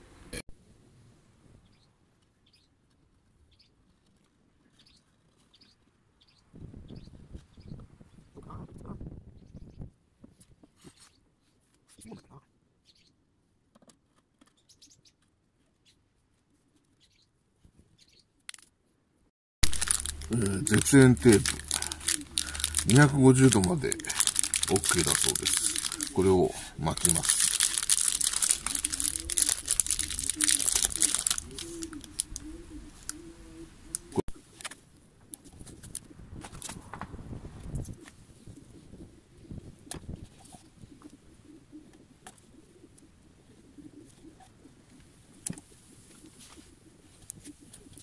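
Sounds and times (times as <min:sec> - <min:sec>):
tape crackling on pot: 0:19.6 - 0:36.1
dove cooing: 0:19.7 - 0:34.5, 0:38.0 - 0:48.0.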